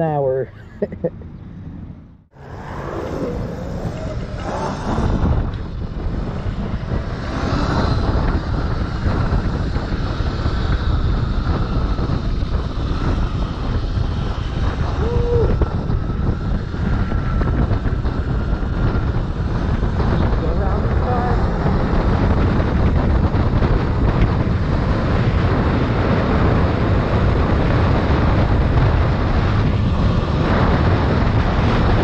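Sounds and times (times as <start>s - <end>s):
wind buffeting microphone: 0.0s - 32.0s
electric motor whine: 2.4s - 5.7s.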